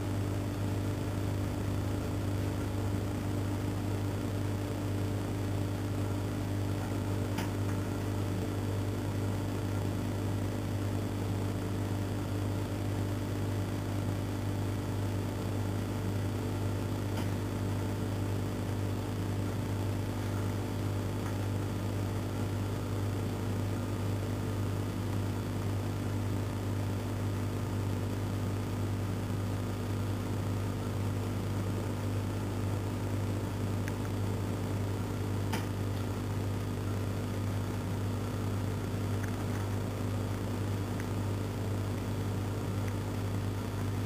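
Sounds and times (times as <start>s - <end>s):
low mechanical hum: 0.0s - 44.0s.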